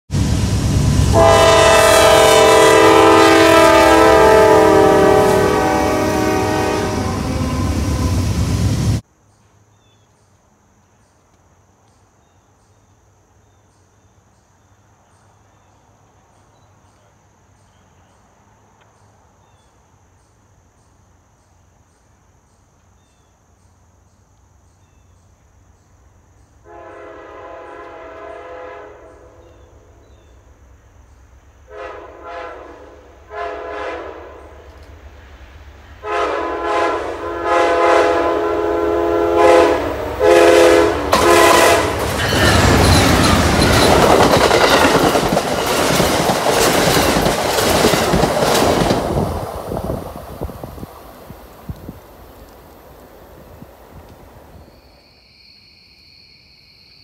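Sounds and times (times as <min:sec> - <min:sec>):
locomotive engine and rail rumble: 0:00.1 - 0:55.0
train air horn: 0:00.2 - 0:09.0, 0:26.6 - 0:29.7, 0:31.7 - 0:34.7, 0:36.0 - 0:43.5.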